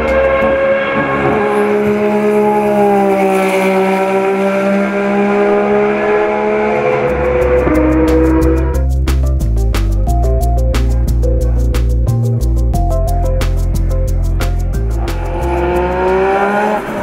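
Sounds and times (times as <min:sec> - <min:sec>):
race car engine running: 0:00.0 - 0:08.9, 0:13.8 - 0:17.0.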